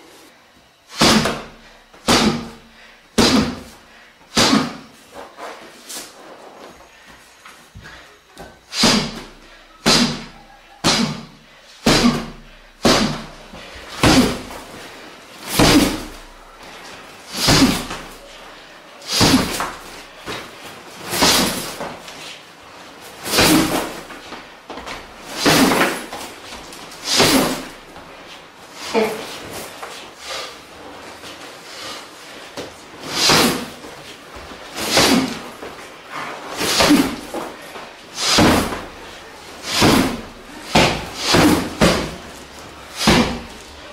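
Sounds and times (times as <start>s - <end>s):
heavy thuds of training blows: 0.9s - 3.7s, 4.3s - 4.9s, 8.7s - 14.8s, 15.4s - 16.4s, 17.3s - 18.2s, 19.1s - 22.1s, 23.2s - 27.8s, 33.0s - 33.8s, 34.8s - 35.7s, 36.5s - 37.6s, 38.2s - 43.6s
knee strikes thumping heavy bag: 1.0s - 2.6s, 3.2s - 3.7s, 8.8s - 14.6s, 15.5s - 16.3s, 17.3s - 18.2s, 19.1s - 19.9s, 21.1s - 21.9s, 23.2s - 24.1s, 25.2s - 26.2s, 27.0s - 27.7s, 34.8s - 35.5s, 38.2s - 38.9s, 39.6s - 42.2s, 43.0s - 43.5s.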